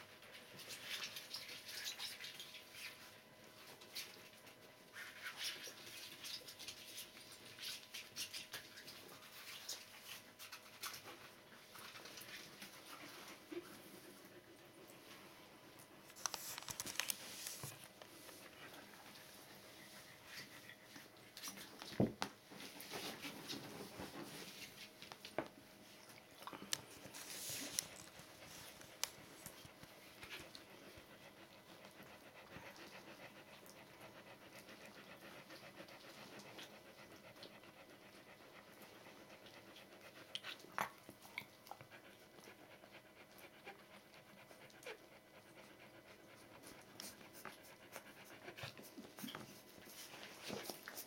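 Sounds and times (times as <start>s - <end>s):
dog panting: 16.3s - 24.9s, 27.0s - 51.0s.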